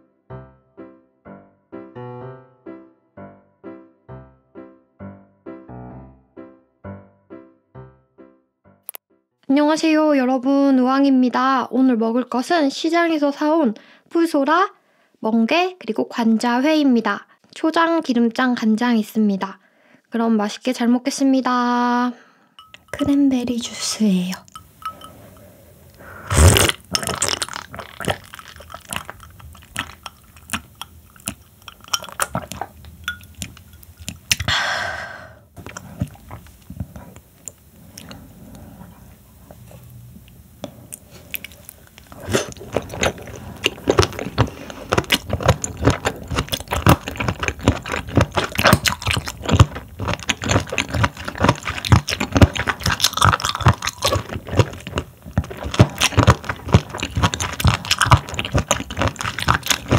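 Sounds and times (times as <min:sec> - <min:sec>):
wet crunchy chewing: 0:24.4 - 0:34.5, 0:35.6 - 0:59.9.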